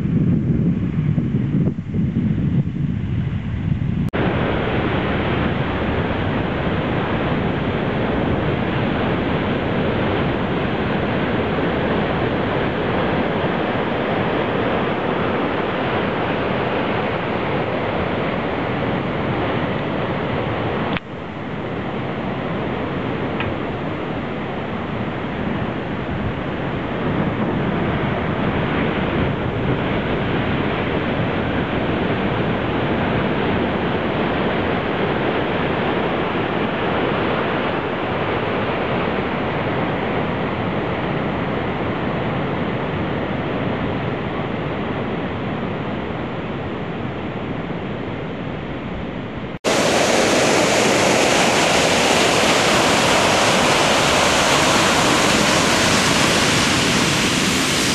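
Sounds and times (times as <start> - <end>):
big waves breaking on shore: 3.4 - 57.9
ocean surf rushing: 4.2 - 26.7, 49.5 - 57.9.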